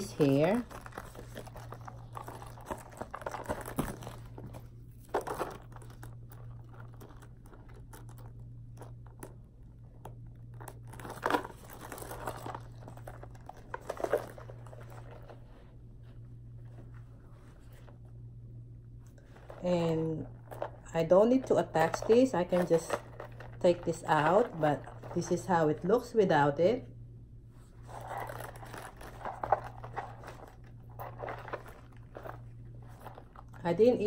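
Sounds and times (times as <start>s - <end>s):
canvas pouches rustling: 0.0s - 7.3s, 27.8s - 34.0s
low hum: 0.0s - 34.0s.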